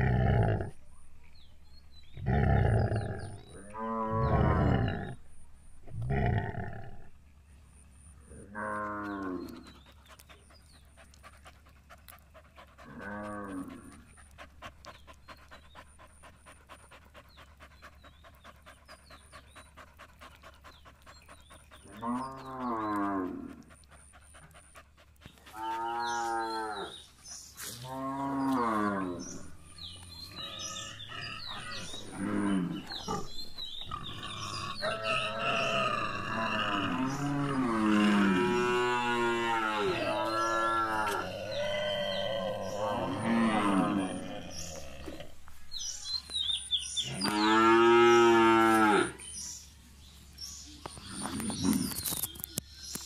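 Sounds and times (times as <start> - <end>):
cattle mooing: 12.8 - 14.0, 34.7 - 45.3.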